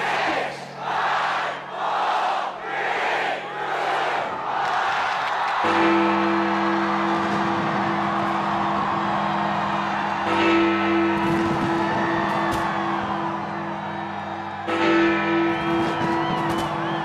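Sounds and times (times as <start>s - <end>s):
large bell striking: 5.6s - 17.0s.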